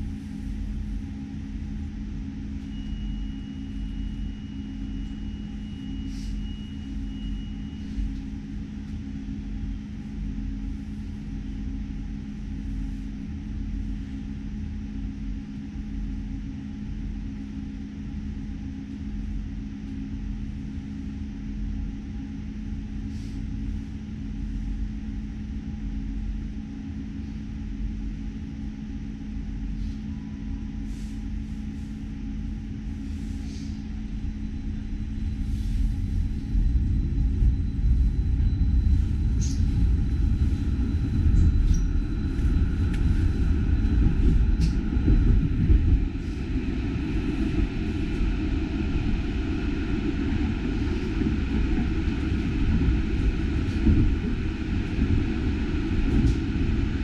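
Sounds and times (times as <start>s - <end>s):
tram low hum and rumble: 0.0s - 57.0s
tram motor rising whine: 31.4s - 57.0s.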